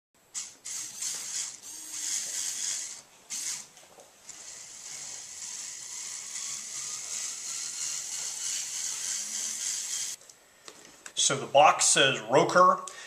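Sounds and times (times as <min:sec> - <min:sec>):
small motor and gears whirring: 0:00.3 - 0:10.2.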